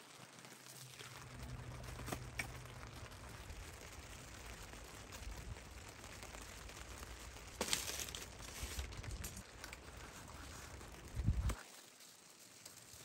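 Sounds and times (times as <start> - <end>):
crackling scrape: 0.0 - 13.0
low steady rumble: 1.1 - 7.6.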